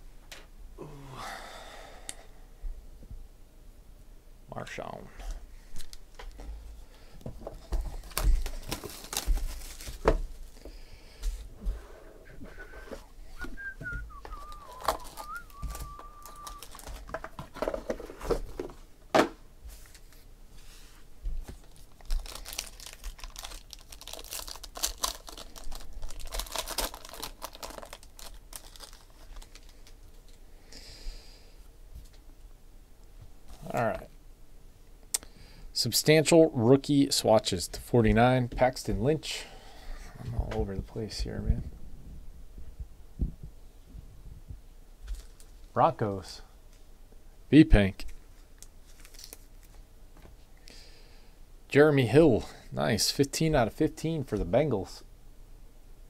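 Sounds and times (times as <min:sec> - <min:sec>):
cardboard crinkling and tearing: 0:07.6 - 0:10.4, 0:14.4 - 0:18.4, 0:21.6 - 0:30.0, 0:48.8 - 0:49.8.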